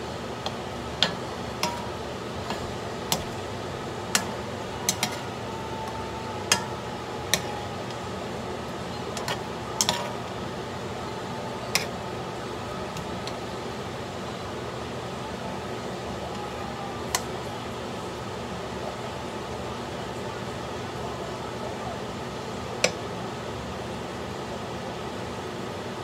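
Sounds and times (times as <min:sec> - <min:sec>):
spoon clinking against wok: 0:00.4 - 0:08.0, 0:08.6 - 0:10.4, 0:11.6 - 0:12.0.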